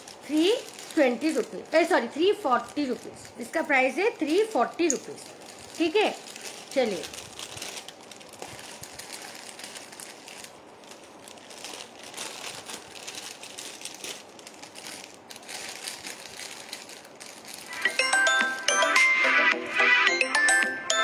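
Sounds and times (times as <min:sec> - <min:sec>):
packaging crinkling: 0:00.0 - 0:17.8.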